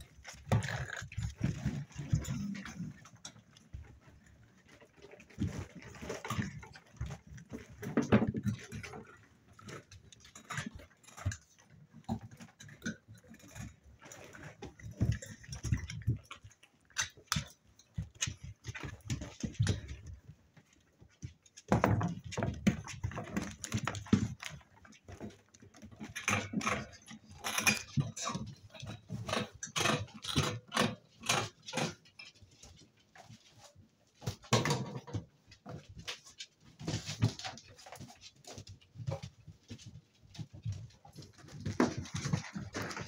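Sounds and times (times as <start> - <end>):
paws knocking on plastic box: 34.2 - 43.0.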